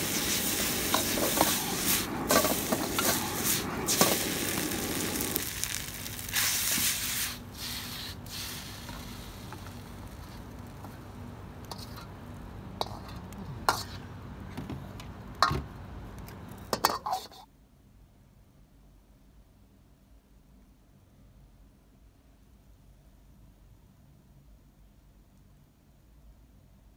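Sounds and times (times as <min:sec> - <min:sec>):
noodles sizzling in a wok: 0:00.0 - 0:13.1.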